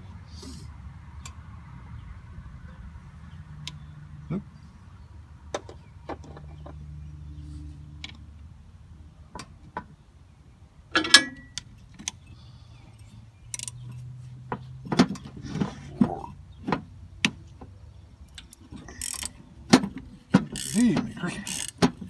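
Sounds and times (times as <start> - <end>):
hand wrench turning a bolt: 13.5 - 13.8, 18.8 - 19.4, 20.4 - 22.0.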